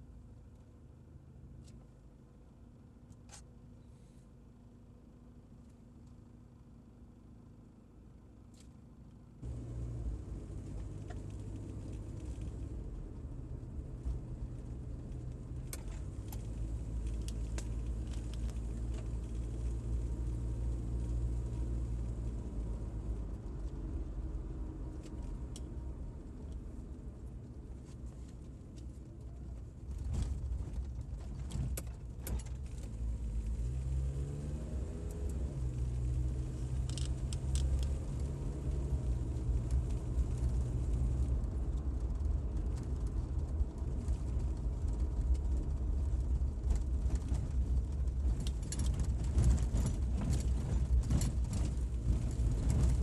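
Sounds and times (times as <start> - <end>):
car engine humming: 9.4 - 53.0
light clicks and rattles: 36.6 - 53.0.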